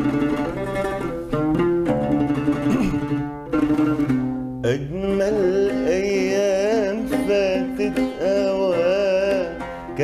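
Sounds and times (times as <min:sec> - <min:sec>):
plucked oud: 0:00.0 - 0:10.0
man singing with vibrato: 0:04.6 - 0:10.0.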